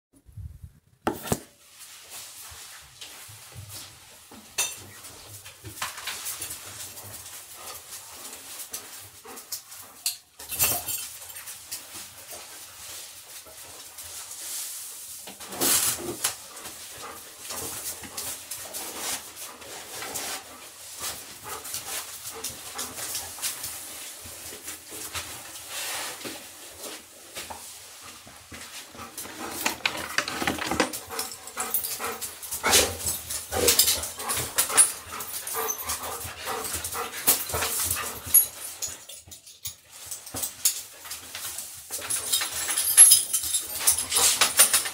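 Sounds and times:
collar and lead clicks and rustles: 1.3 - 44.9
dogs whimpering and panting: 28.8 - 39.4.

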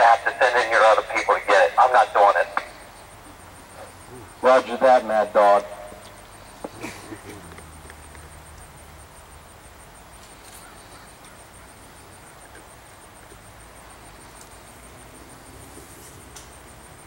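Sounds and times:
low hiss and hum: 0.0 - 17.0.

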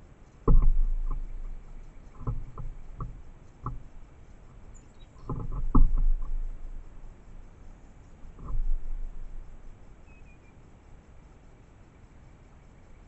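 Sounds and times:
dull knocks and thumps: 0.4 - 10.0.

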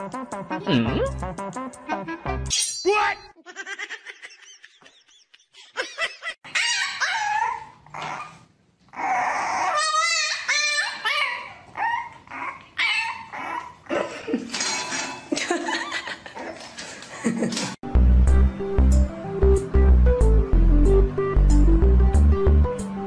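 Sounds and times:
puppy yipping and whining: 6.4 - 13.9.

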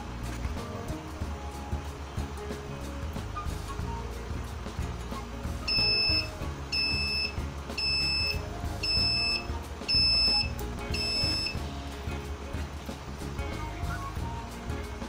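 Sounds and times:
music playing: 0.0 - 15.0
high electronic beep: 5.7 - 11.6.

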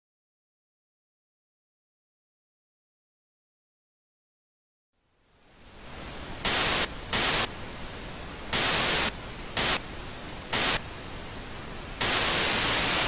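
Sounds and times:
television static hiss: 5.0 - 13.0
loud static bursts: 5.8 - 13.0.

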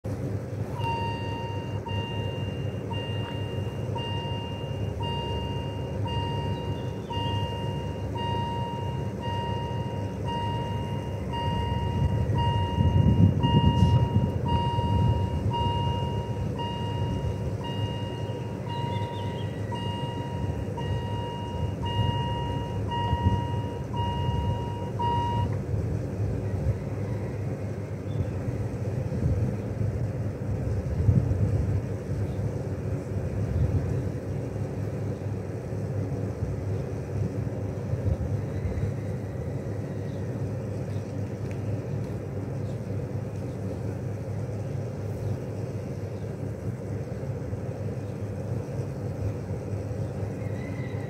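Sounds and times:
level crossing electronic beeps: 0.8 - 25.6.

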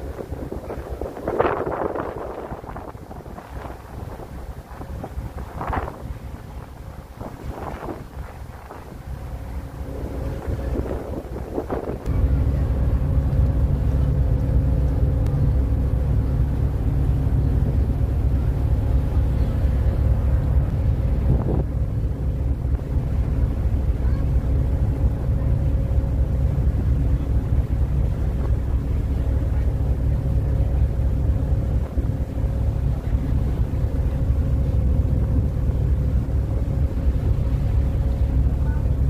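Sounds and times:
ferry engines rumbling: 0.0 - 39.0
wake water rushing: 0.0 - 39.0
wind buffeting microphone: 0.0 - 39.0.

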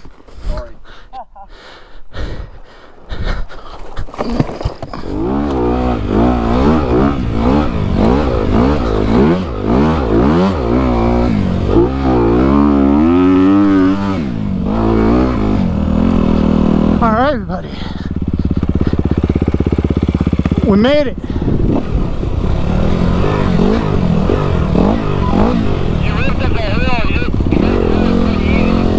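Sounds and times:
knocks and scrapes: 3.6 - 5.6
dirt bike engine revving: 4.9 - 28.9.

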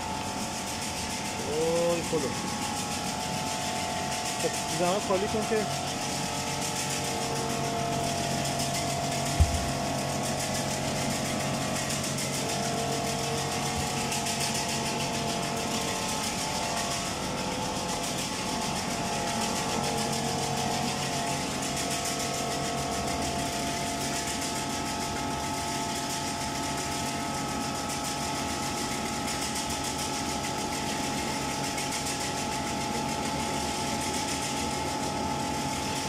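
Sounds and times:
fast fine rattle: 0.0 - 27.0
machine motor hum and whine: 0.0 - 36.0.

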